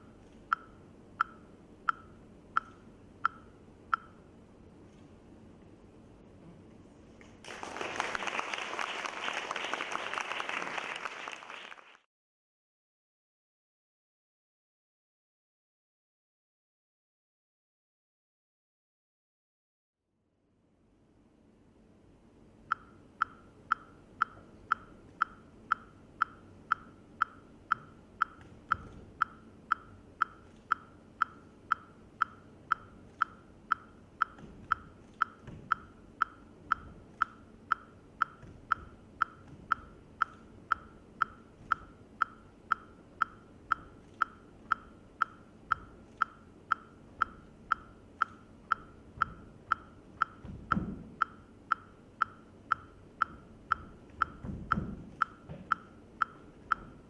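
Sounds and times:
metronome-like clicking: 0.0s - 4.3s, 22.7s - 57.0s
bare feet thudding on stage: 50.4s - 51.2s, 54.4s - 55.7s.

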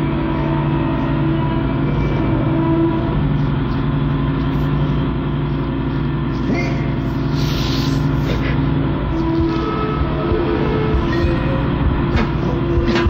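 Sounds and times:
low drone with held tones: 0.0s - 13.0s
short hiss: 7.3s - 8.1s.

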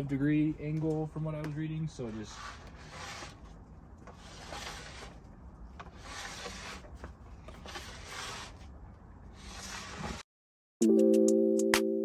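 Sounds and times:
plastic scraper scraping snowboard: 2.1s - 5.2s, 5.8s - 10.2s.

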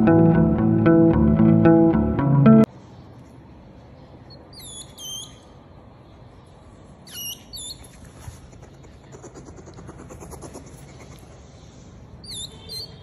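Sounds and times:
hedgehogs peeping: 4.2s - 5.7s, 7.0s - 13.0s.

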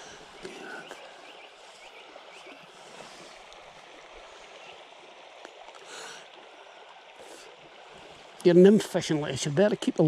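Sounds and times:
river running over stones: 0.0s - 10.0s.

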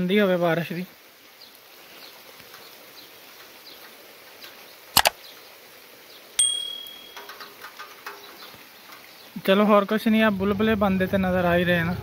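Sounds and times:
faint steady rain: 0.0s - 12.0s
quick clicks: 5.0s - 5.2s
bell ding: 6.4s - 7.3s.

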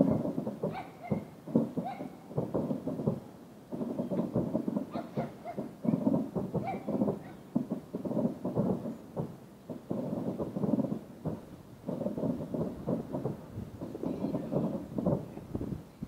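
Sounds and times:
distant fireworks booming: 0.0s - 16.0s.

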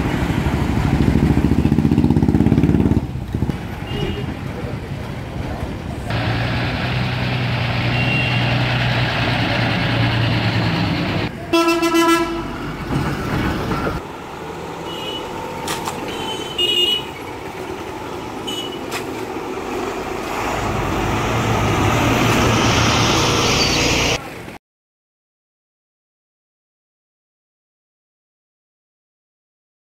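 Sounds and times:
diesel bus engines running: 0.0s - 24.6s
bus horn: 3.8s - 4.3s, 7.8s - 8.7s, 11.4s - 12.6s, 14.8s - 15.4s, 16.0s - 17.2s, 18.4s - 19.0s.

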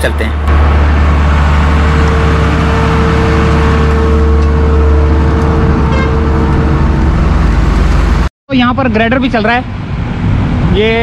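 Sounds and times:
steady engine whine: 0.0s - 8.3s
diesel engine drone: 0.0s - 11.0s.

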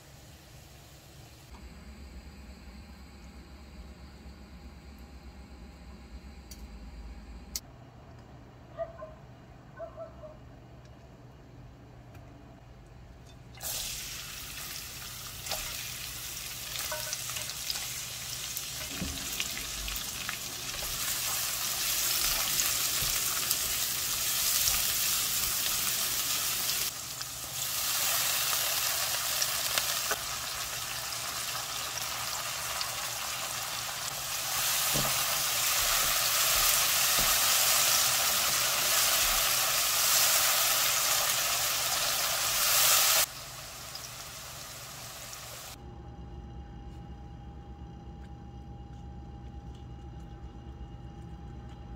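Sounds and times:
aromatics sizzling in hot oil: 13.6s - 45.8s.

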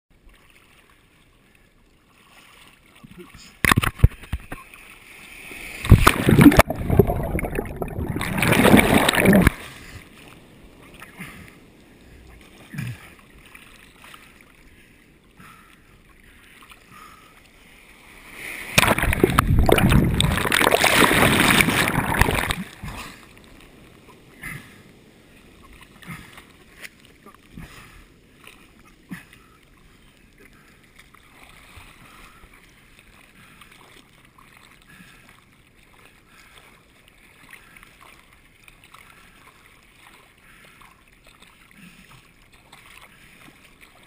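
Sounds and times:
surf rushing over camera: 5.6s - 9.7s, 18.4s - 22.8s.

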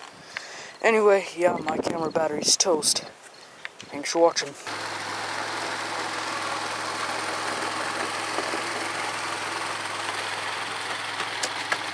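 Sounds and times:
atv engine droning: 4.6s - 11.9s.

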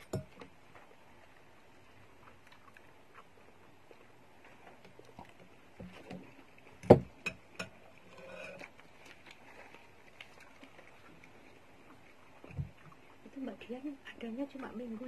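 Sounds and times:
person chewing: 2.2s - 4.1s.

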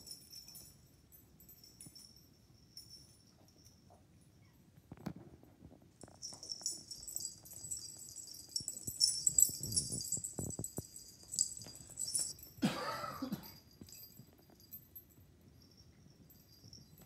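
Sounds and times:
pet collars jingling: 0.0s - 4.5s, 6.0s - 17.0s.

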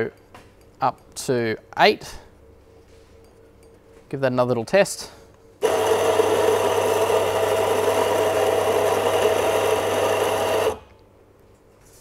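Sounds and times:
coffee grinder grinding beans: 5.6s - 10.9s.

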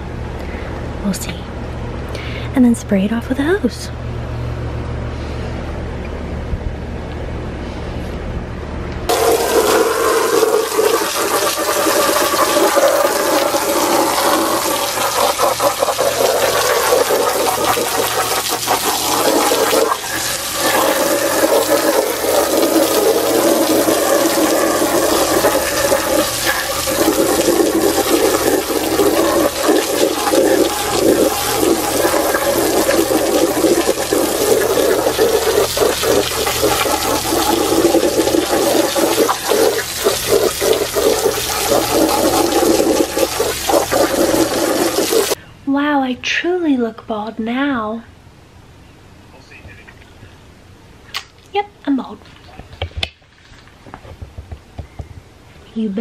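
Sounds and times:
hose nozzle spraying water: 9.1s - 45.4s.

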